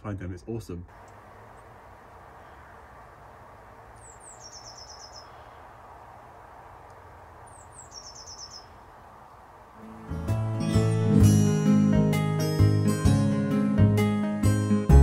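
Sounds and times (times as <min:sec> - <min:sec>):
outdoor background hiss: 0:00.0 - 0:15.0
songbird singing: 0:00.9 - 0:11.2.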